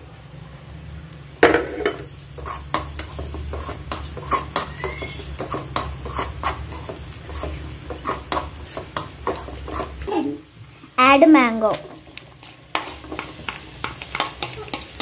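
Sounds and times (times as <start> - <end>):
metal spoon scraping metal pan: 1.6 - 10.1, 12.3 - 15.0.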